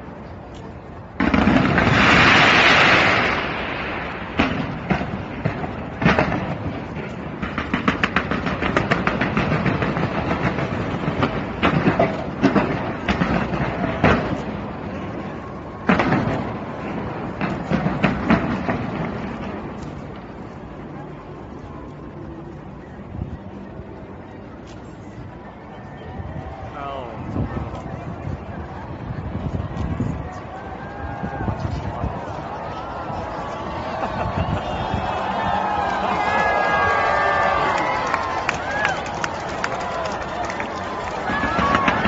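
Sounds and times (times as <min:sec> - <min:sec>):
fireworks crackling pops: 0:00.2 - 0:22.3, 0:27.3 - 0:42.0
loud firework burst: 0:01.2 - 0:19.7
fireworks bangs: 0:01.2 - 0:20.9, 0:27.2 - 0:42.0.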